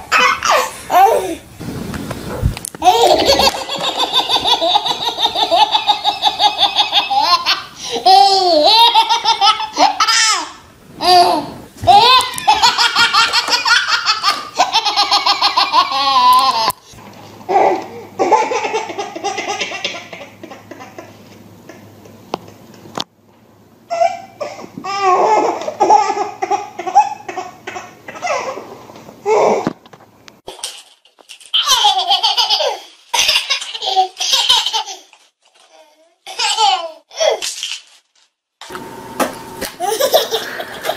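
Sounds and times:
baby laughing: 0.0s - 1.4s, 2.8s - 16.8s, 17.5s - 21.8s, 23.9s - 28.6s, 31.6s - 35.2s, 36.3s - 37.4s, 39.8s - 40.9s
quiet baby sounds: 0.0s - 1.5s.

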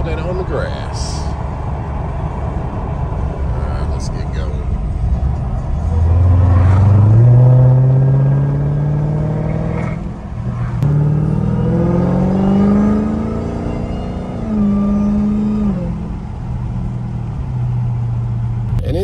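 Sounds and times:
car engine accelerating hard: 1.7s - 19.0s.

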